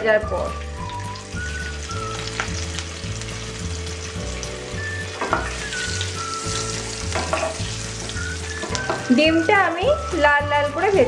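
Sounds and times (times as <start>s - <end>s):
eggs sizzling in hot oil: 0.0s - 11.0s
spatula knocking against pan: 7.1s - 7.6s.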